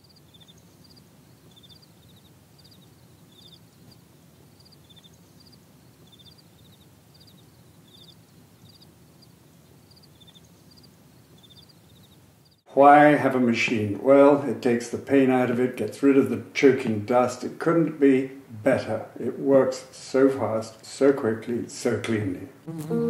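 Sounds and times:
high-pitched chirps: 0:22.7 - 0:23.0.

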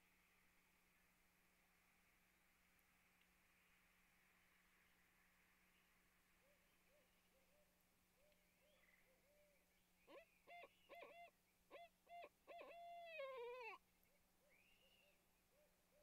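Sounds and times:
owl hooting: 0:10.1 - 0:13.8.

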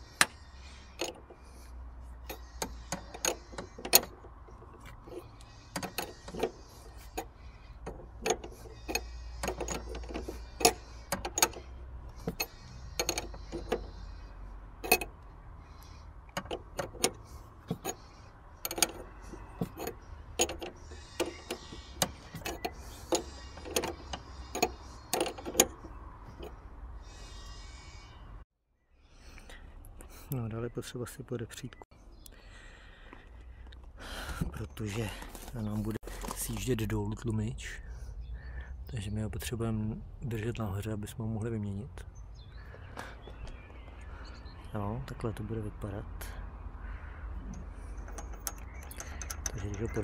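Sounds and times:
ring spanner clicking on nut: 0:02.3 - 0:14.0, 0:14.8 - 0:15.2, 0:18.6 - 0:26.5, 0:47.5 - 0:50.0.

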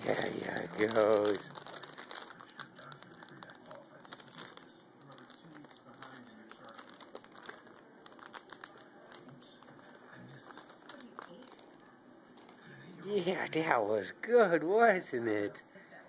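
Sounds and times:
faint clicks and crinkling: 0:00.0 - 0:12.8.

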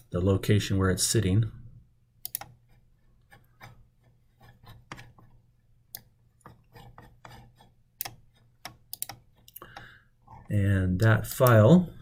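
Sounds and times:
computer mouse clicks and scrapes: 0:02.3 - 0:05.4, 0:06.0 - 0:10.5.

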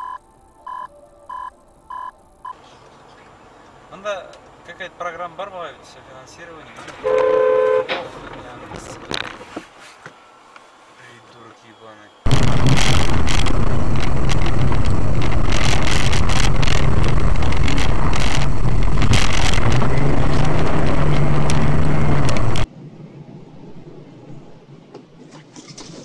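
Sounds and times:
road noise: 0:01.0 - 0:26.0
car engine drone: 0:10.1 - 0:25.0
knocks and rattles: 0:12.3 - 0:22.7.

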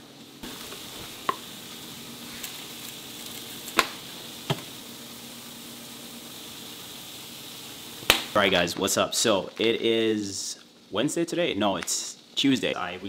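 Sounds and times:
meat sizzling in a pan: 0:00.0 - 0:11.1
sharp pops of frying fat: 0:00.4 - 0:04.8, 0:07.9 - 0:08.9.

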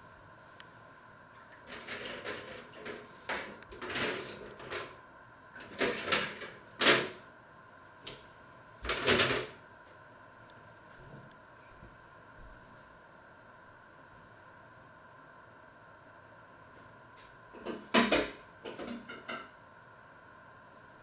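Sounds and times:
dishes and utensils knocking: 0:17.6 - 0:19.5.

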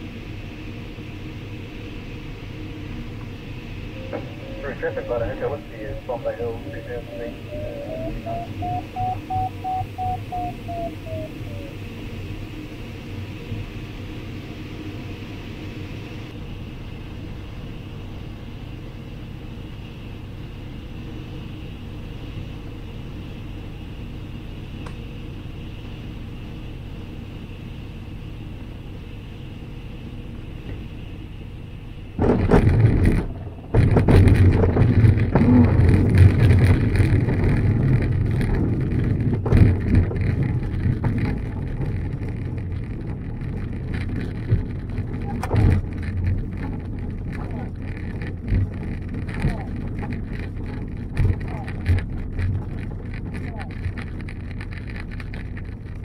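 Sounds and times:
airflow rushing around glider canopy: 0:00.0 - 0:56.0
wheel rumbling over grass: 0:24.0 - 0:56.0.

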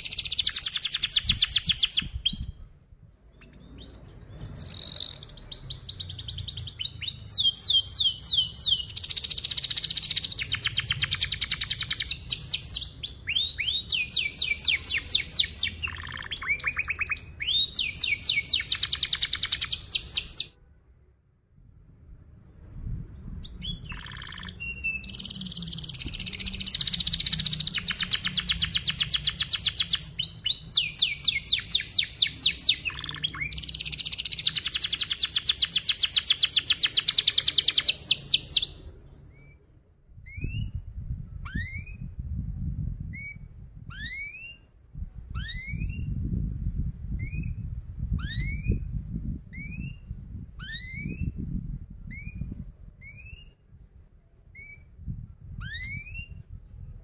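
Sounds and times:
canary singing trills: 0:00.0 - 0:20.5, 0:23.3 - 0:39.6.

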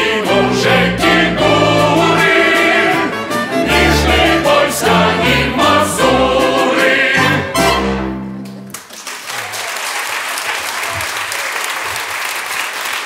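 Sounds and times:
choir and orchestra: 0:00.0 - 0:08.6
audience applause: 0:08.4 - 0:13.0.

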